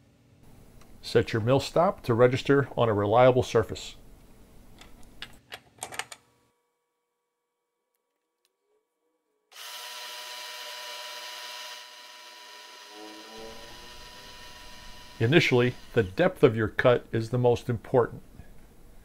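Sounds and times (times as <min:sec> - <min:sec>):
milling machine spindle whirring: 0:09.6 - 0:16.2.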